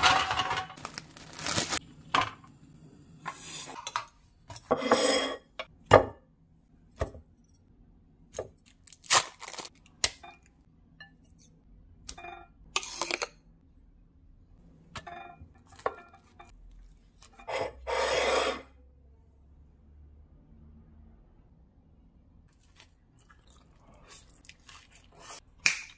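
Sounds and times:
ceramic plate set on wooden table: 0:03.2 - 0:06.3, 0:17.2 - 0:18.8
rough scraping noise: 0:17.4 - 0:18.8.

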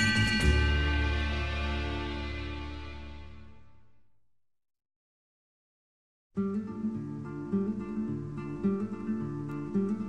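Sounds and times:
background music held chord: 0:00.0 - 0:04.0.

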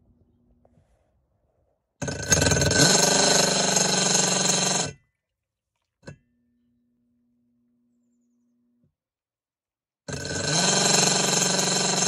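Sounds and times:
washing machine motor whining: 0:02.0 - 0:05.0.

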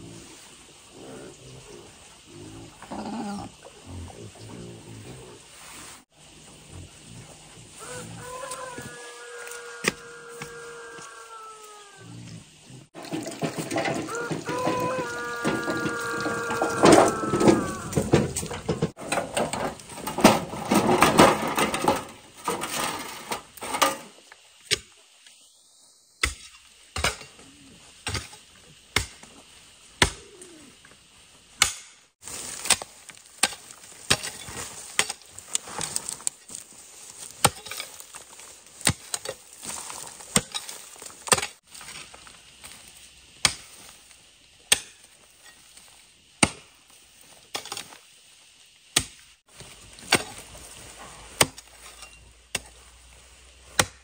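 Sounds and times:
wheelbarrow rattling over rough ground: 0:12.9 - 0:24.2
hoe chopping into stony soil: 0:30.0 - 0:30.3, 0:31.6 - 0:36.6, 0:37.2 - 0:42.2, 0:46.4 - 0:46.8, 0:48.9 - 0:49.2, 0:50.0 - 0:50.5, 0:51.1 - 0:52.9, 0:53.7 - 0:54.0.

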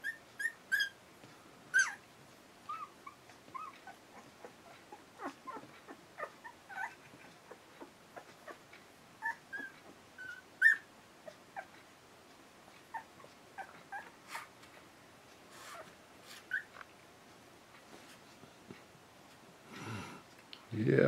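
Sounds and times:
puppies squeaking and whimpering: 0:00.0 - 0:01.0, 0:01.7 - 0:02.0, 0:02.7 - 0:11.8, 0:12.8 - 0:14.5, 0:15.6 - 0:16.8.

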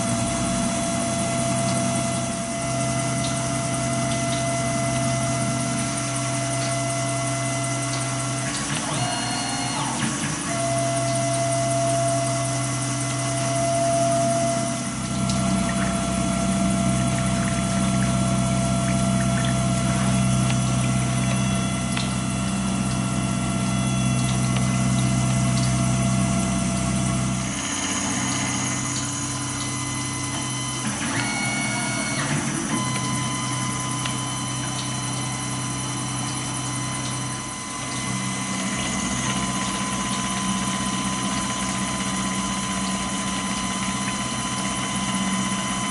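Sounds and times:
coolant pump and splashing: 0:00.0 - 0:45.9
milling machine spindle whine: 0:00.0 - 0:45.9.

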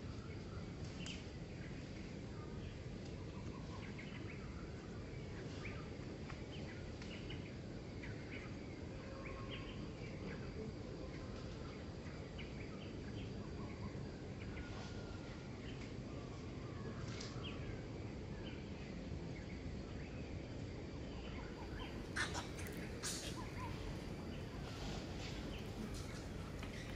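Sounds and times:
faint high insect whine: 0:00.0 - 0:26.9
steady low background noise: 0:00.0 - 0:26.9.

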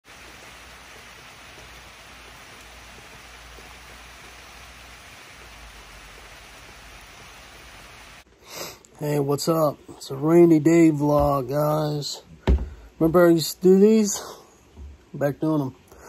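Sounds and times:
rain falling on grass and trees: 0:00.0 - 0:08.3.

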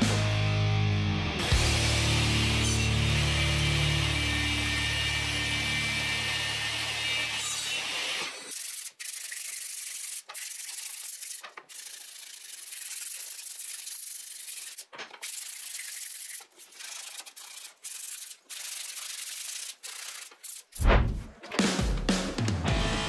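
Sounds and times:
sandpaper sanding wood: 0:08.5 - 0:20.8.

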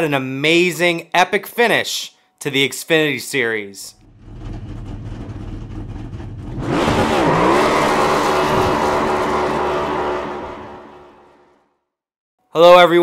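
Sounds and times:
race car engine revving: 0:04.0 - 0:11.5.

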